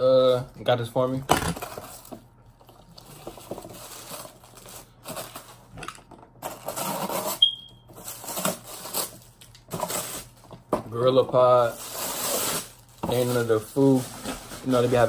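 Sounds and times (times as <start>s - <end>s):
plastic wrapping crinkling: 1.5s - 15.0s
short high beep: 7.4s - 7.8s.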